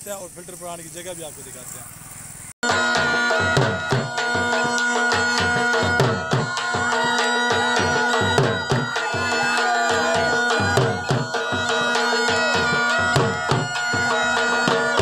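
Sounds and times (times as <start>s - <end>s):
folk melody: 2.6s - 15.0s
hand drum strokes: 2.7s - 15.0s.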